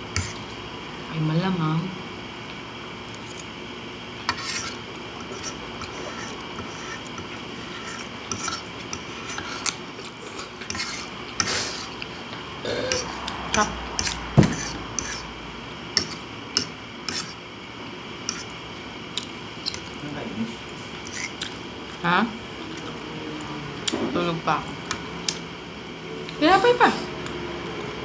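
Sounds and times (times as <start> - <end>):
fork scraping a ceramic plate: 4.3 - 11.6, 14.0 - 15.3, 16.0 - 17.4, 21.0 - 21.5.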